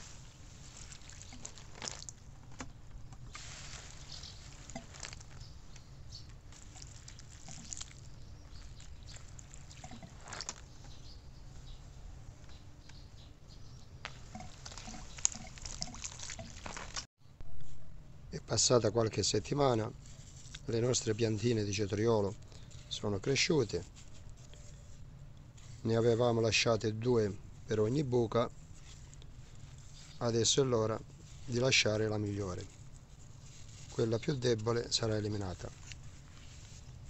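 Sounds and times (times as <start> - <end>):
hose water splashing on soil: 0.0 - 2.6, 3.2 - 10.8, 14.0 - 17.1.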